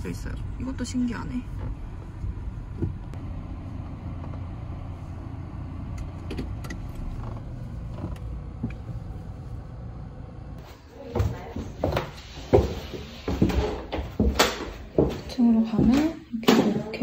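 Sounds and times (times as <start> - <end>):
car cabin rumble: 0.0 - 10.6.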